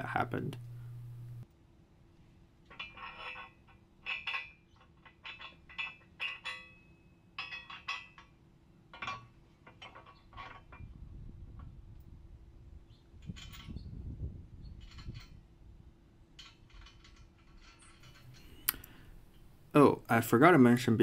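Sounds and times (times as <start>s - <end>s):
tools tapping on metal plate: 8.9s - 10.9s.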